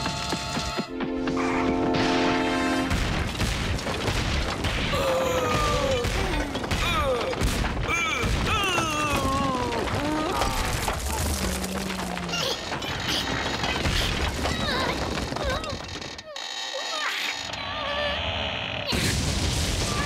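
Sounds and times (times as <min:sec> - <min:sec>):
crashing and rumbling effects: 0:00.9 - 0:16.2, 0:18.5 - 0:20.0.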